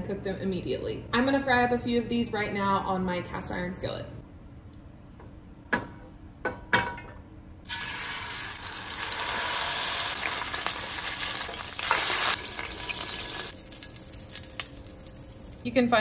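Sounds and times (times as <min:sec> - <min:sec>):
burger patties sizzling in oil: 0:07.7 - 0:15.6.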